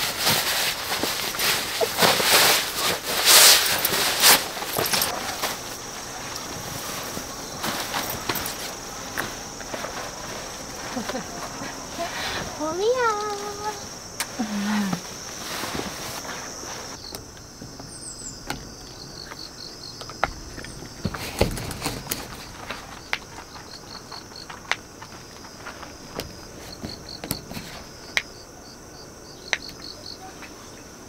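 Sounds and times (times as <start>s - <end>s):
camping gear clicks and knocks: 0.0s - 11.9s, 15.7s - 28.3s
insects chirping in high trill: 0.0s - 31.0s.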